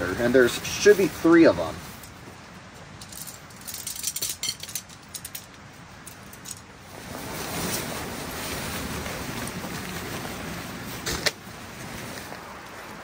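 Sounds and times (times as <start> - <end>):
tent fabric rustling: 0.0 - 2.4, 6.2 - 13.0
tent poles clicking and rattling: 0.5 - 7.9, 11.0 - 11.4.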